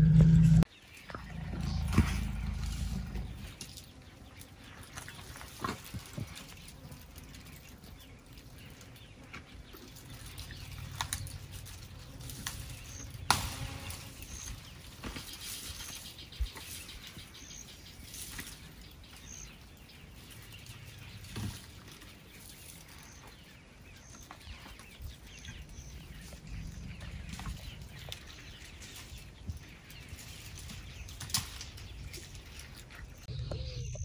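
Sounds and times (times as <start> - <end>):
low rumble: 0.0 - 3.6, 25.4 - 29.3
branches cracking and rustling: 0.4 - 33.3
bird chirps: 22.4 - 34.0.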